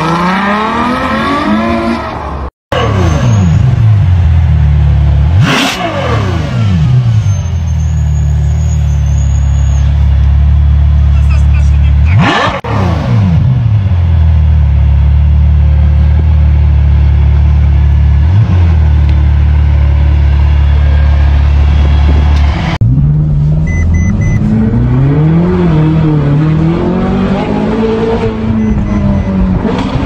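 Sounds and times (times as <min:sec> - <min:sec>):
car engine revving and idling: 0:00.0 - 0:07.3, 0:09.9 - 0:30.0
short electronic beeps: 0:23.6 - 0:24.4, 0:28.5 - 0:29.5.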